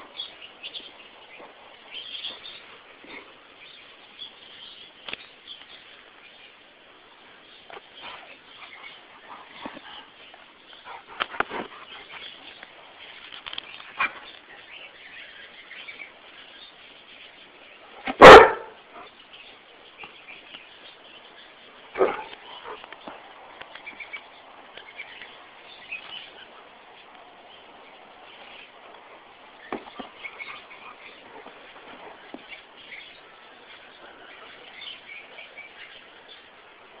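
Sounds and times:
dog barking: 0:18.1 - 0:18.8, 0:22.0 - 0:22.4.

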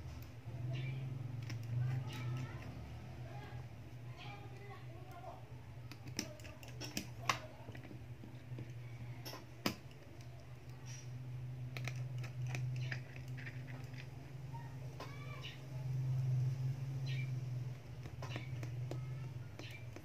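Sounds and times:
steady low hum: 0:00.0 - 0:20.0
small tool clicks and taps: 0:05.9 - 0:11.0, 0:17.9 - 0:20.0.

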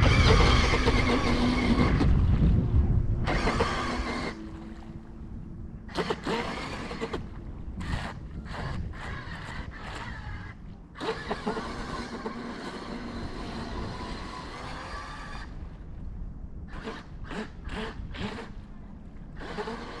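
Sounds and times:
boat motor and jet pump whining: 0:00.0 - 0:20.0.

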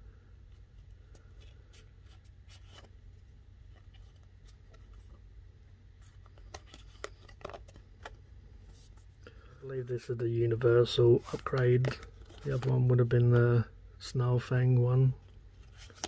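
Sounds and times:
low steady hum: 0:00.0 - 0:16.0
cards sliding and rubbing: 0:00.5 - 0:05.3, 0:06.0 - 0:09.1, 0:11.0 - 0:12.8, 0:15.6 - 0:16.0.

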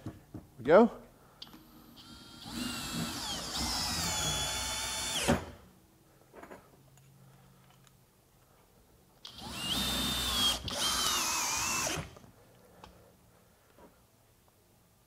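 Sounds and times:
cordless drill whining under load: 0:01.4 - 0:05.6, 0:09.2 - 0:12.2.

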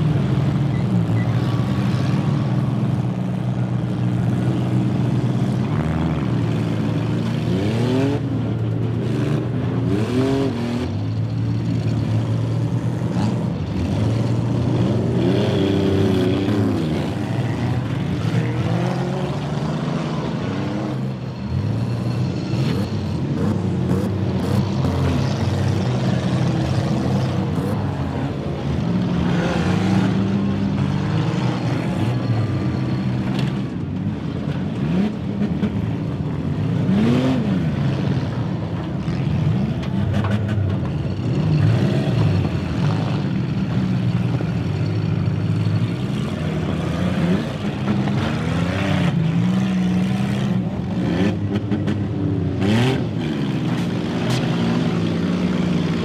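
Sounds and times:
car engines revving: 0:00.0 - 0:56.0.

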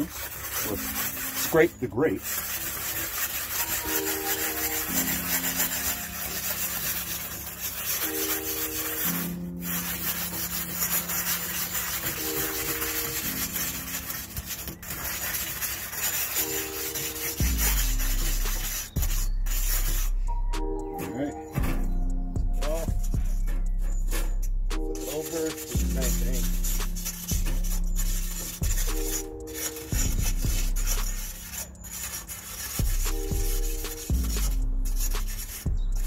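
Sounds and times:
stone scraping metal grill grates: 0:00.0 - 0:36.0
heavy bass: 0:21.6 - 0:25.0, 0:25.8 - 0:29.2, 0:32.8 - 0:36.0.

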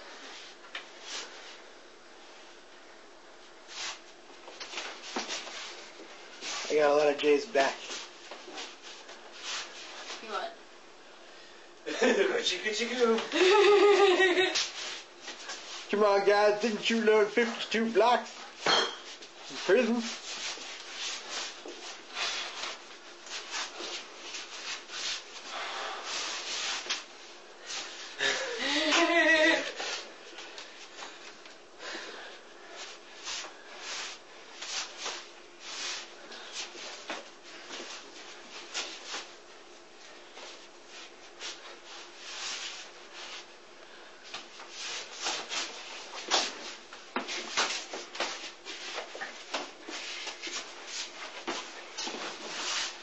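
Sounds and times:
faint steady hum: 0:00.0 - 0:53.0
person grunting or laughing: 0:13.3 - 0:14.2, 0:28.2 - 0:29.8.

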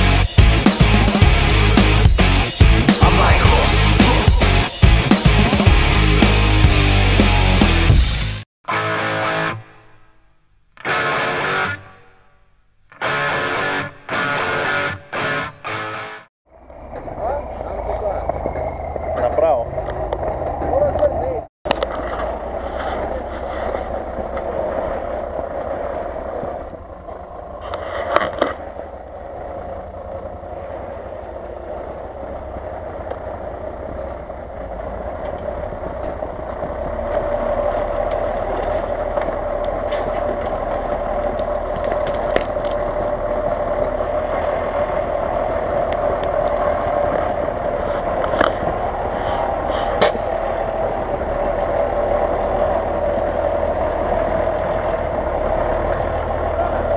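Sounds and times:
car engine running at low speed: 0:16.5 - 0:56.9
branches cracking: 0:35.1 - 0:50.7.

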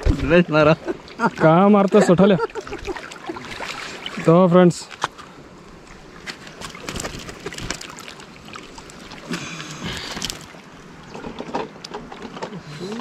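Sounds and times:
fish and fishing line rustling: 0:06.1 - 0:11.3.

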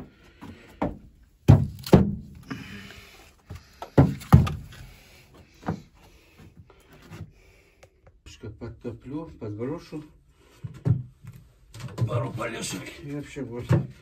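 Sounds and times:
heavy wooden knocks and thumps: 0:03.8 - 0:04.8, 0:13.5 - 0:14.0.

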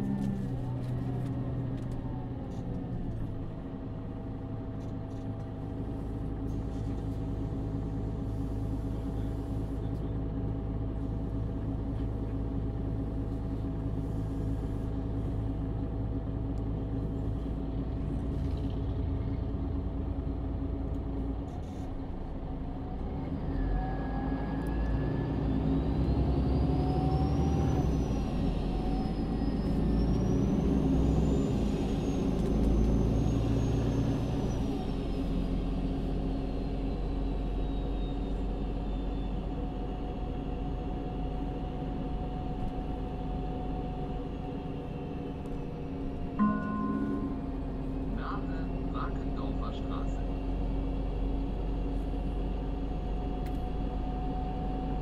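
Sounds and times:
bus engine running: 0:00.0 - 0:55.0
rising and falling whine: 0:46.4 - 0:49.0.

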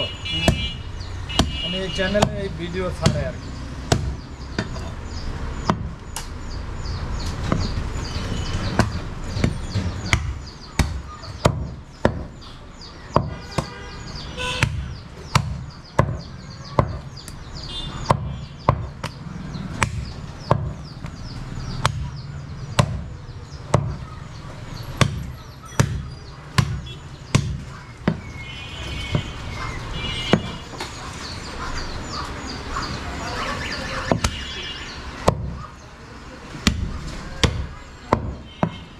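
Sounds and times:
cleaver chopping meat and bone: 0:00.4 - 0:05.0, 0:05.6 - 0:06.4, 0:07.3 - 0:07.8, 0:08.6 - 0:12.4, 0:13.1 - 0:13.8, 0:14.6 - 0:24.0, 0:24.8 - 0:28.4, 0:30.2 - 0:30.9, 0:33.9 - 0:34.6, 0:35.2 - 0:35.7, 0:36.5 - 0:38.9.

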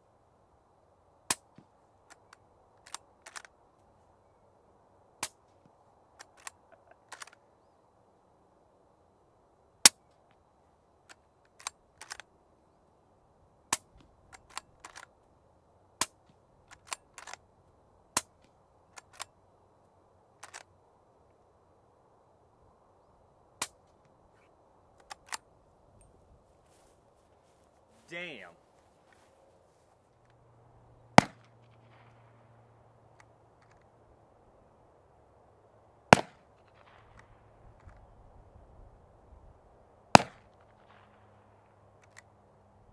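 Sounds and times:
rifle bolt metallic clicks: 0:02.1 - 0:03.6, 0:06.2 - 0:07.4, 0:11.1 - 0:12.3, 0:13.7 - 0:15.1, 0:16.0 - 0:17.4, 0:18.2 - 0:19.4, 0:20.4 - 0:20.7, 0:25.0 - 0:25.5
suppressed rifle shots: 0:31.1 - 0:32.5, 0:36.1 - 0:37.4, 0:40.1 - 0:41.4.

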